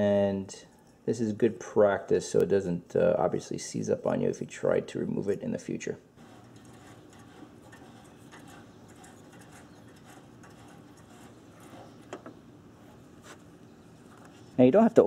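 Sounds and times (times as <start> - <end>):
handling rustles and ticks: 6.2 - 14.7.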